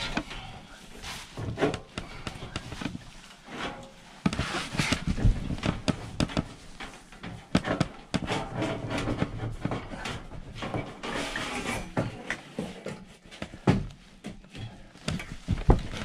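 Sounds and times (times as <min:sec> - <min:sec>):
hands rustling inside metal cabinet: 0:00.0 - 0:16.0
knocks and clicks on sheet metal: 0:04.8 - 0:06.6, 0:07.2 - 0:09.8.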